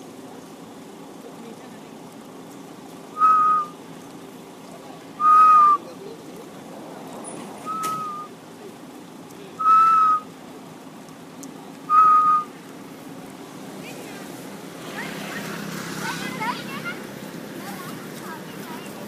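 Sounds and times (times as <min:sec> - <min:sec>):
whistled note: 0:03.2 - 0:03.7, 0:05.2 - 0:05.8, 0:07.6 - 0:08.3, 0:09.6 - 0:10.3, 0:11.9 - 0:12.5.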